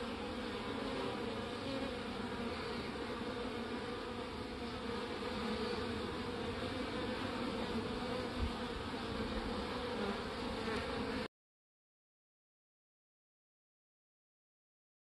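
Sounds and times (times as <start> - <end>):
honey bees buzzing: 0.0 - 11.3.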